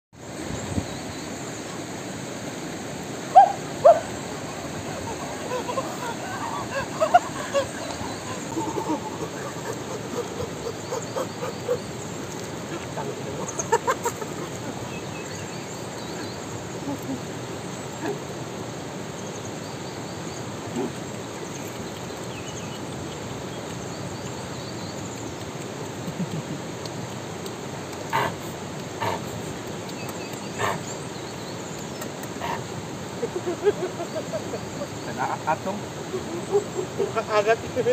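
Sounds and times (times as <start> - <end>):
river water rushing over rocks: 0.2 - 19.2.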